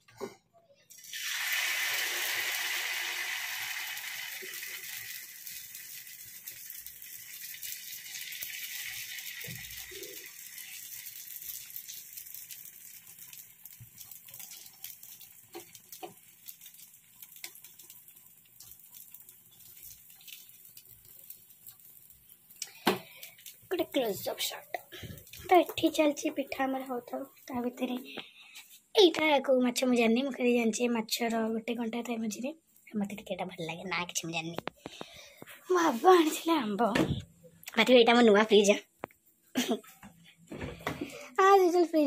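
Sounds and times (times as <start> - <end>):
batter sizzling on a hot pan: 0.9 - 28.8.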